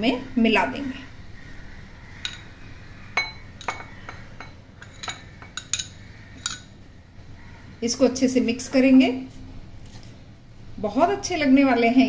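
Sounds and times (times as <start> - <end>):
metal spoon clinking against bowls: 2.2 - 2.6, 3.2 - 6.8.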